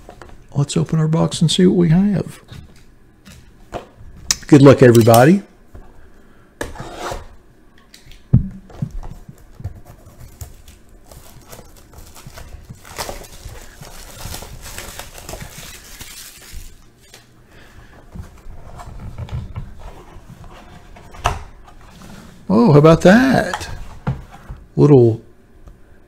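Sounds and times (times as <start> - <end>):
plastic wrapping crinkling: 9.1 - 17.3.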